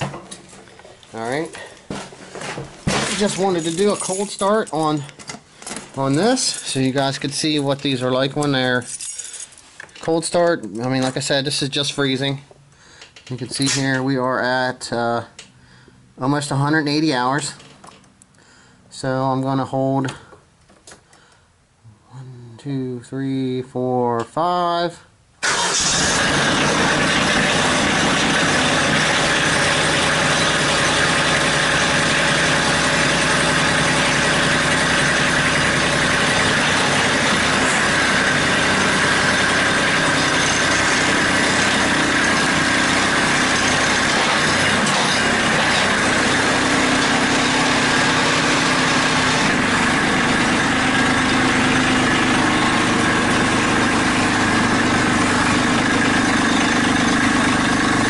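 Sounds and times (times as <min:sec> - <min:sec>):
tractor diesel engine idling: 0:25.4 - 0:58.0.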